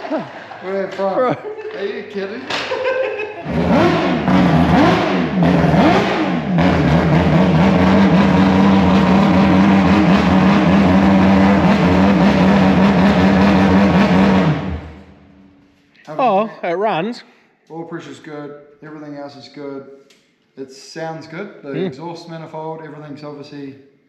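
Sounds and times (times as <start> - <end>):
rotary engine revving: 3.4 - 15.4.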